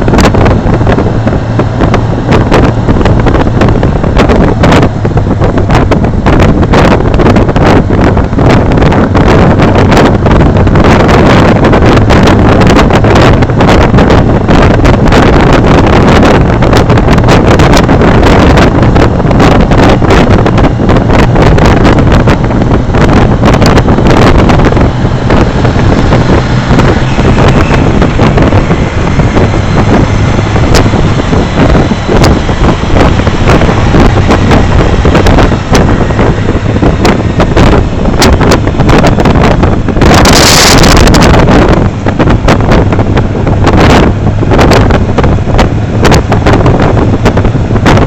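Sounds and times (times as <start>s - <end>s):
motorcycle engines droning: 0.0s - 48.0s
wind buffeting microphone: 0.0s - 48.0s.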